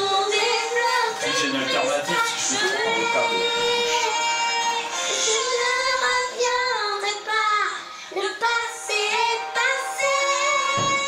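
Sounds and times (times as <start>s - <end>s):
high voice singing: 10.0s - 11.0s.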